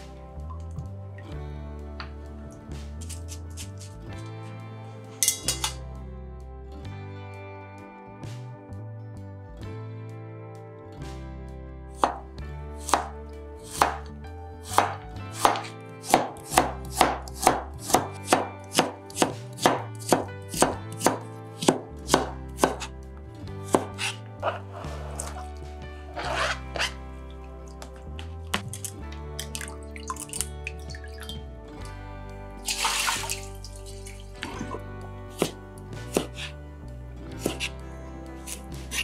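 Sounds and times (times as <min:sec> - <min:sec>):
soft background music: 0:00.0 - 0:39.0
knife chopping on cutting board: 0:12.0 - 0:12.2, 0:12.8 - 0:13.1, 0:13.7 - 0:14.1, 0:14.7 - 0:22.9, 0:23.7 - 0:25.4, 0:35.3 - 0:36.5, 0:37.4 - 0:37.7
pieces sliding off board: 0:26.1 - 0:27.0.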